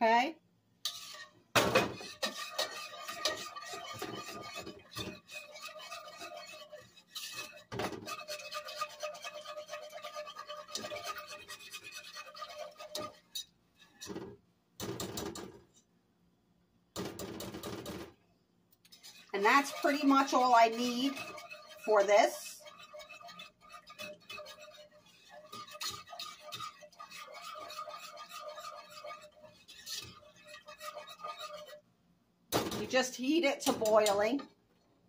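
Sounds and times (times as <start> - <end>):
whisk scraping metal saucepan: 0.8 - 15.8, 17.0 - 18.1, 18.8 - 31.9, 32.5 - 34.5.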